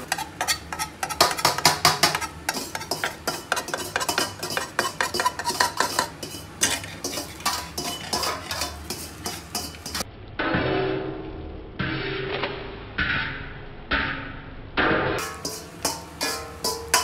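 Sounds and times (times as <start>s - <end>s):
egg sizzling: 0.0s - 10.1s, 15.2s - 17.0s
metal spatula scraping frying pan: 0.0s - 10.1s, 15.2s - 17.0s.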